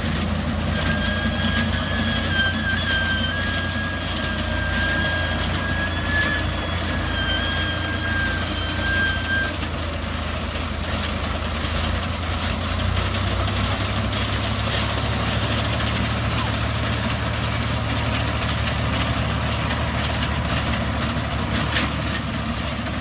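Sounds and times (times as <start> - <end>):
tractor diesel engine running: 0.0 - 23.0
thin high whine: 0.7 - 9.8.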